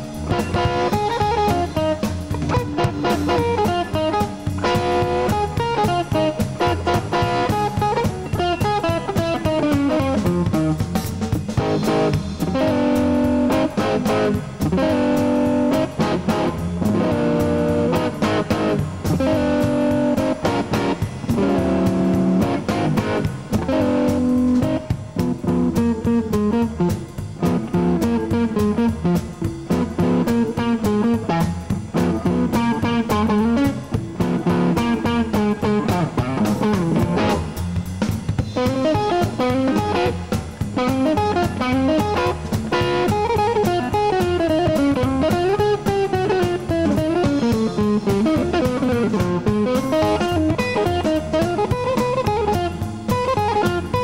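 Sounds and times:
electric guitar solo: 0.0 - 37.8, 38.5 - 54.0
electric blues band playing: 0.0 - 54.0.

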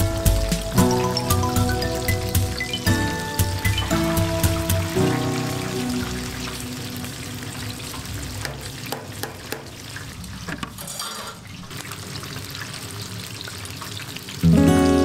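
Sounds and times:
loud music: 0.0 - 6.4
food sizzling in hot oil: 0.0 - 15.0.

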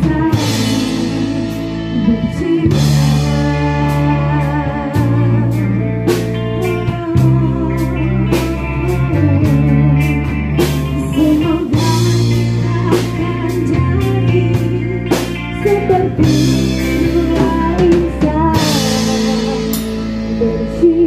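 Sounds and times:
live rock band playing: 0.0 - 21.0
drum and cymbal hits: 18.6 - 20.3.

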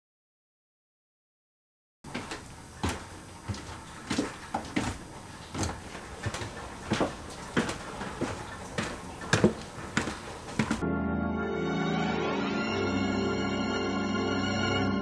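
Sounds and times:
footsteps on wooden stairs: 2.1 - 10.8.

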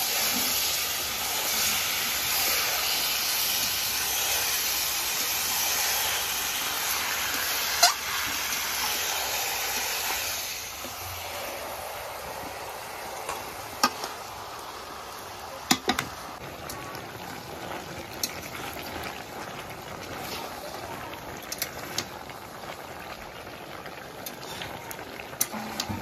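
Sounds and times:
curry sizzling: 0.0 - 26.0
metal spatula scraping pan: 7.6 - 8.4, 25.4 - 26.0.

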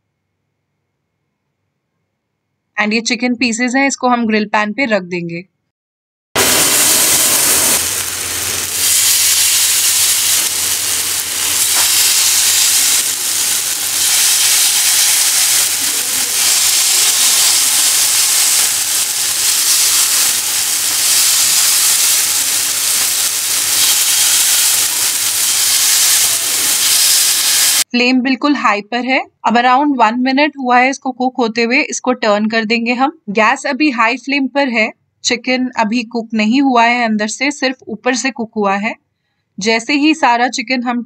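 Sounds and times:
chicken sizzling on grill pan: 6.4 - 27.9.

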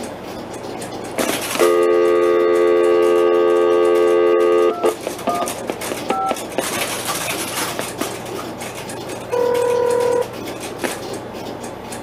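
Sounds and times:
steady call-progress tone: 0.0 - 6.9, 8.3 - 12.0
touch-tone beeps: 1.6 - 5.5.

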